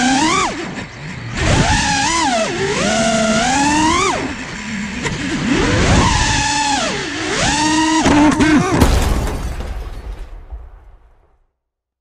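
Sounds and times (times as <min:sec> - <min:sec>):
quadcopter propellers whining: 0:00.0 - 0:08.8.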